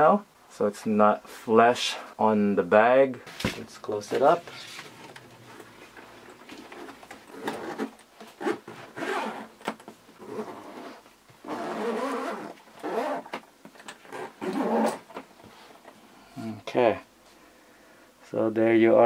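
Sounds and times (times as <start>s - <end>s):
zipper being pulled: 6.4s - 13.4s, 14.0s - 15.1s.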